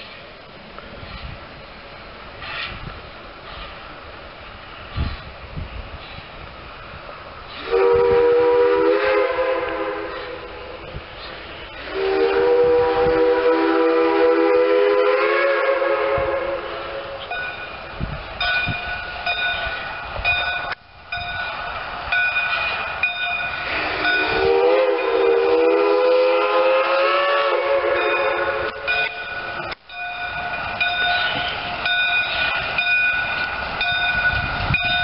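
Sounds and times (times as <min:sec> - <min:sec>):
train rolling along track: 0:00.0 - 0:35.0
steam whistle blasts: 0:07.6 - 0:10.6, 0:11.8 - 0:17.3, 0:23.6 - 0:29.2.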